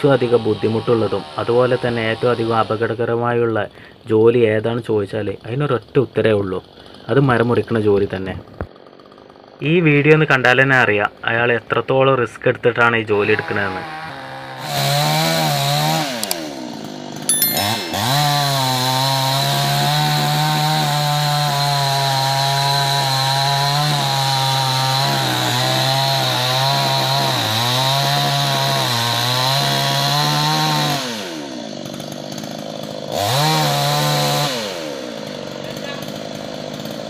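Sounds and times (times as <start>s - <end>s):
chainsaw cutting tree trunk: 0.0s - 3.2s, 6.7s - 9.7s, 13.2s - 37.0s
chainsaw idling: 6.3s - 9.9s, 13.6s - 37.0s.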